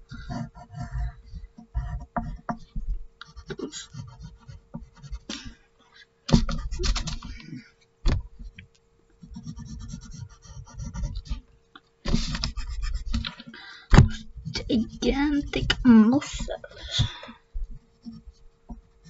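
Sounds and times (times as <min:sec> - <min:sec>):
pencil scratching on paper: 0:00.0 - 0:05.6, 0:06.3 - 0:07.4, 0:09.2 - 0:11.5, 0:12.1 - 0:13.4, 0:14.1 - 0:16.9, 0:17.6 - 0:19.0.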